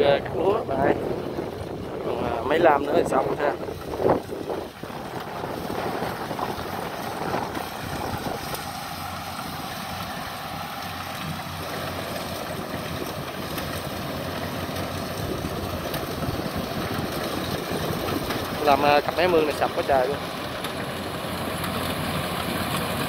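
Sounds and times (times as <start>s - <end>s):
wind buffeting the microphone: 0.0s - 8.9s, 15.1s - 20.0s
distant diesel engine running: 0.0s - 23.0s.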